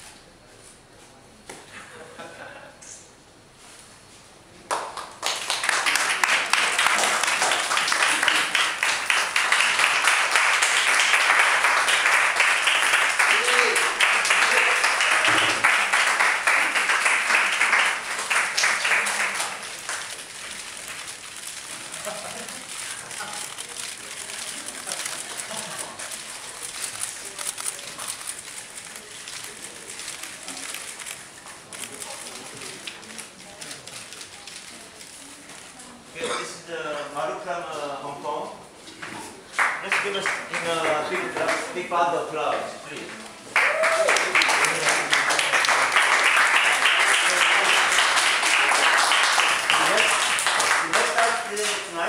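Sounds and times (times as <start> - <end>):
crowd applauding: 4.7 - 34.7, 39.5 - 41.9, 43.4 - 52.0
camera shutters clicking: 20.0 - 35.1.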